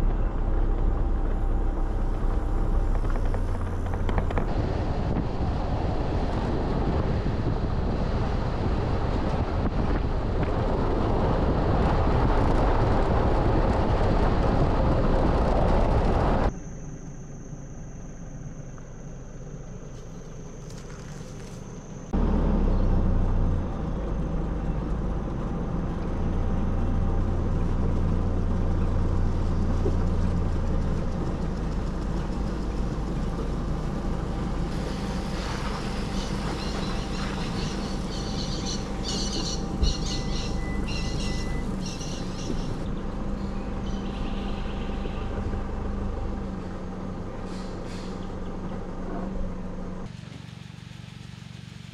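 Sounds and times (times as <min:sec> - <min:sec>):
tyre and road noise: 0:00.0 - 0:16.8, 0:19.7 - 0:51.9
vehicle engine rumble: 0:00.0 - 0:51.9
high-pitched whine: 0:14.6 - 0:24.9.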